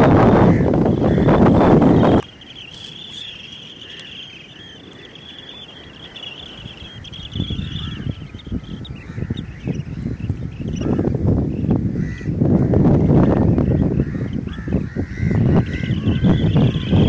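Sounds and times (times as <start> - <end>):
birds twittering: 0.0 - 17.0
wind buffeting microphone: 0.0 - 17.0.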